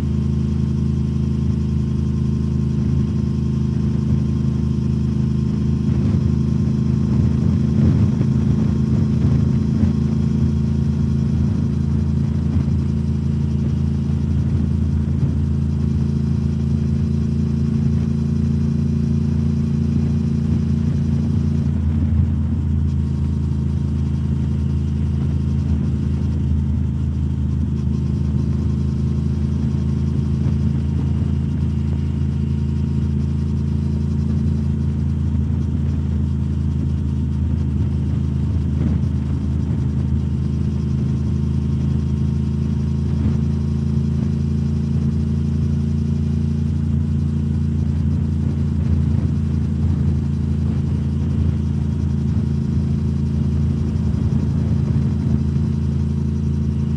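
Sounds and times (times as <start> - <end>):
motorcycle engine cruising: 0.0 - 56.9.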